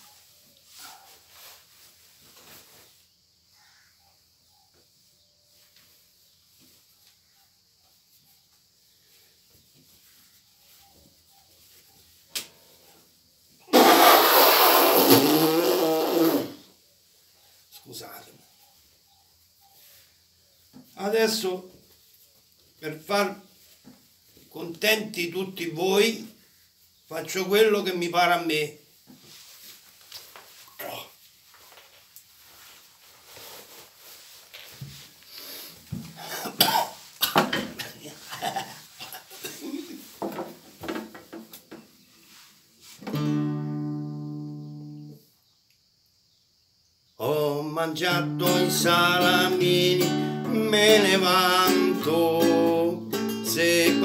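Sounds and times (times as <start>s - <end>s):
clothes rustling: 0.0s - 4.0s, 4.9s - 14.1s, 16.8s - 43.1s
loud nose blow: 13.7s - 16.6s.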